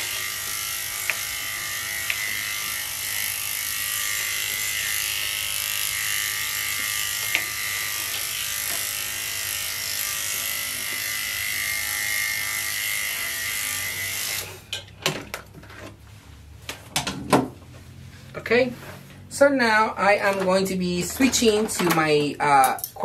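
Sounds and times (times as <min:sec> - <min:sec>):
electric clippers buzzing: 0:00.0 - 0:14.6.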